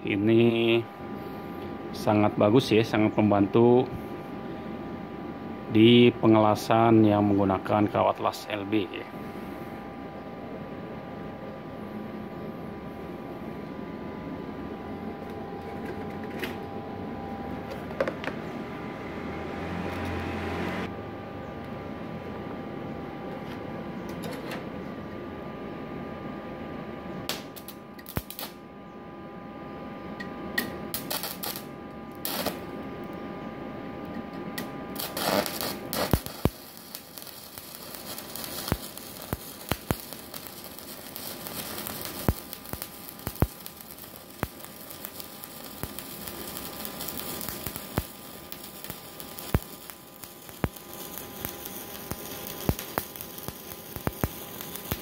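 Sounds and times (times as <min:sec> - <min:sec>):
welding arc sizzling with pops: 0:19.7 - 0:20.9, 0:27.3 - 0:28.6, 0:30.6 - 0:32.7, 0:34.6 - 0:55.0
welding arc strikes crackling: 0:27.3 - 0:28.6, 0:30.6 - 0:32.7, 0:34.6 - 0:55.0.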